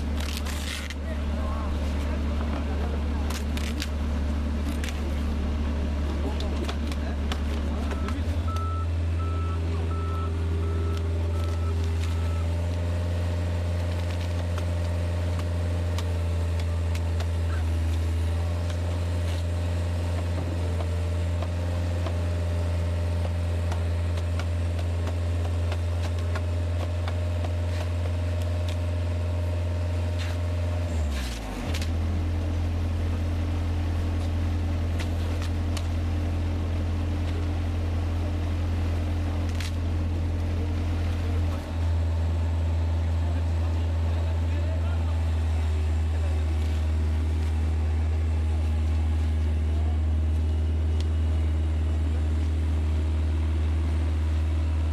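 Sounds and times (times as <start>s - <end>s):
heavy vehicle engine running: 0.0s - 54.9s
reversing alarm beeping: 7.8s - 12.6s.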